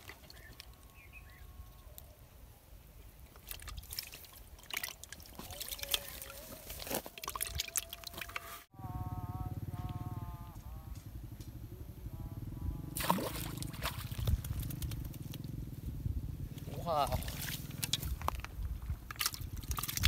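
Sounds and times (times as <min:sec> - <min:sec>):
water splashing and dripping: 0:03.3 - 0:08.6, 0:13.0 - 0:15.4, 0:17.0 - 0:20.0.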